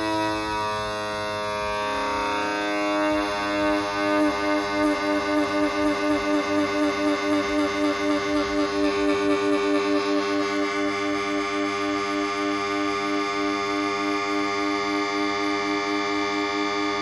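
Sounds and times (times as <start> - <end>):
held synth chord pulsing: 0.0 - 17.0.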